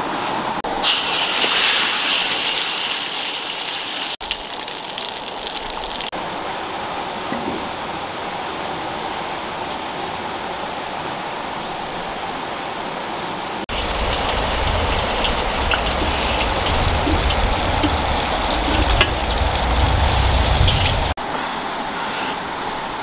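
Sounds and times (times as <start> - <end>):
fire crackling: 0.7 - 6.1, 13.7 - 21.2
wood fire rumbling: 13.7 - 21.2.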